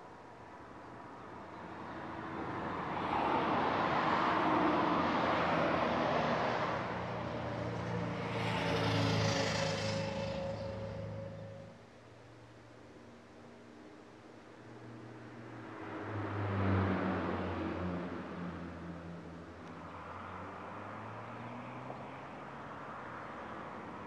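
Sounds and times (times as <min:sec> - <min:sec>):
vehicle passing by: 0:02.9 - 0:11.8, 0:19.8 - 0:23.9.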